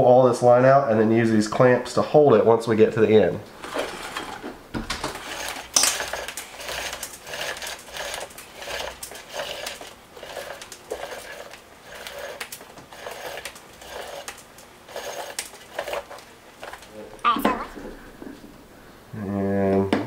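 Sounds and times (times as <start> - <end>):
clothesline pulled from reel: 3.6 - 16.2.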